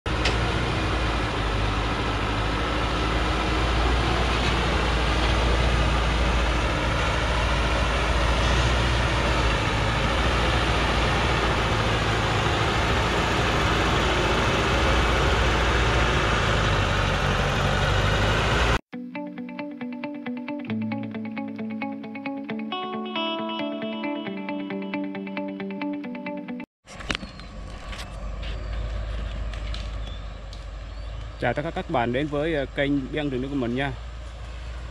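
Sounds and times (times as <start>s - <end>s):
truck engine running: 0.1s - 18.8s.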